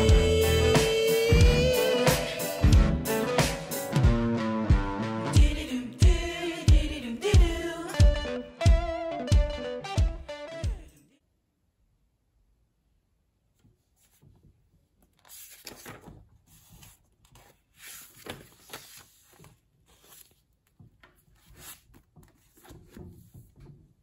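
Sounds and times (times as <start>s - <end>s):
book pages flipping: 13.6s - 23.7s.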